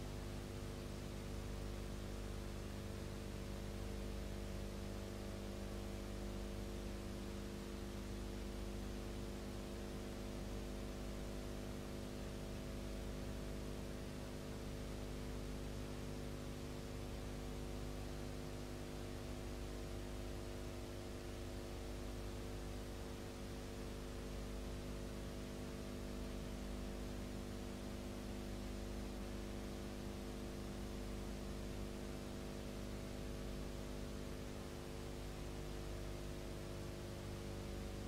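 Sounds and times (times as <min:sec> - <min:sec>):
electrical hum with hiss: 0:00.0 - 0:38.0.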